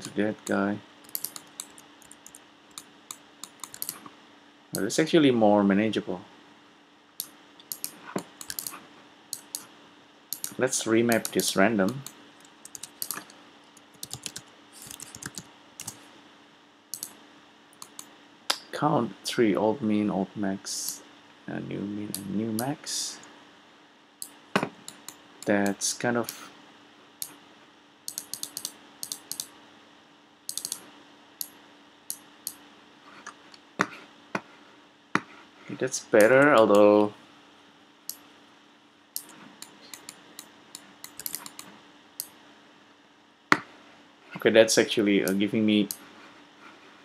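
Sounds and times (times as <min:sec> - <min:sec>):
keyboard typing: 0:00.0 - 0:04.1, 0:07.2 - 0:08.8, 0:09.4 - 0:09.7, 0:10.3 - 0:16.0, 0:17.8 - 0:18.1, 0:28.1 - 0:29.5, 0:30.5 - 0:30.8, 0:39.2 - 0:41.7
faint steady hum: 0:00.0 - 0:47.0.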